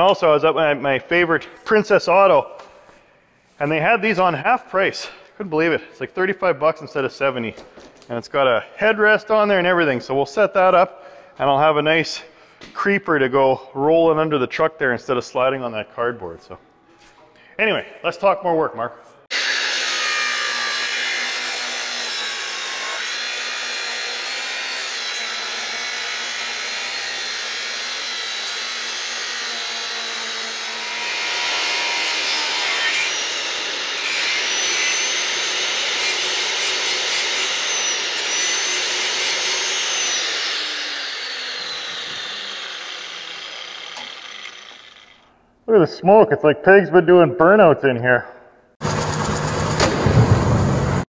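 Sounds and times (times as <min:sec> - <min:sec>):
angle grinder grinding: 0:19.3 - 0:45.4
grinder motor winding down: 0:40.2 - 0:45.3.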